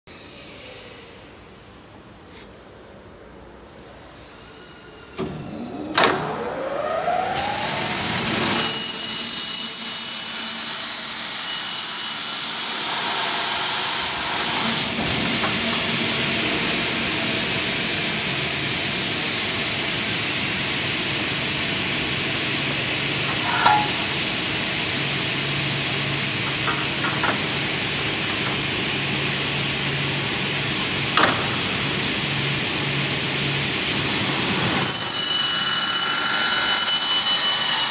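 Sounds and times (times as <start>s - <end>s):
saw blades screeching through metal: 7.4s - 15.0s, 34.4s - 37.9s
saw motor whine: 34.4s - 37.9s.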